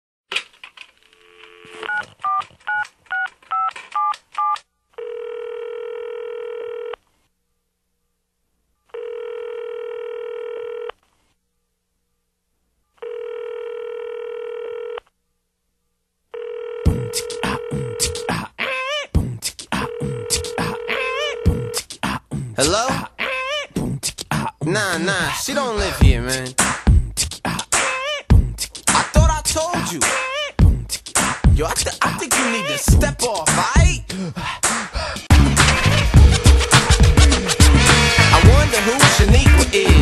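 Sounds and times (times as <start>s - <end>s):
keypad beeps: 1.7s - 4.6s
telephone ringback tone: 3.5s - 7.0s, 8.9s - 10.9s, 13.0s - 15.0s, 16.3s - 18.2s, 19.9s - 21.8s, 36.2s - 37.9s
hip-hop beat: 16.9s - 40.0s.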